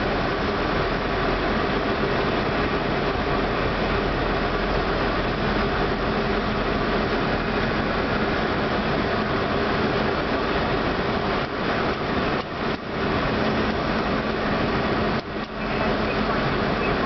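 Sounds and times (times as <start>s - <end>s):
airflow rush: 0.0s - 17.0s
jet engine noise: 0.0s - 17.0s.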